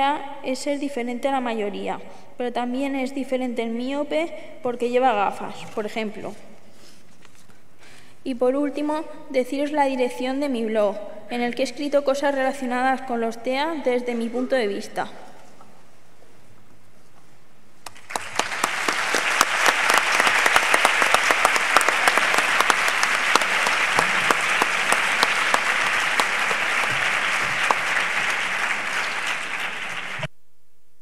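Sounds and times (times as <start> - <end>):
audience applauding: 17.8 - 30.3.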